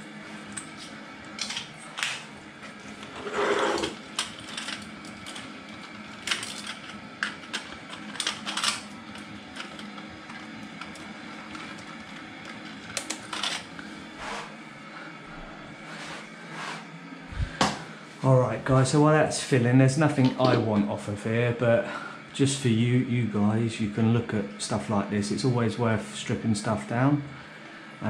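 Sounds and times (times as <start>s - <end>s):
faint steady hum: 0.0s - 28.0s
loud scrape: 3.1s - 4.0s, 14.2s - 14.6s, 15.8s - 16.9s.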